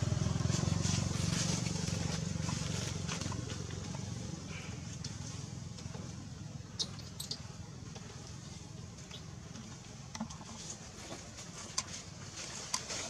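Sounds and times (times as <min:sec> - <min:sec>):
monkeys rustling in dry leaves: 0:00.0 - 0:05.5
low outdoor rumble: 0:00.0 - 0:13.0.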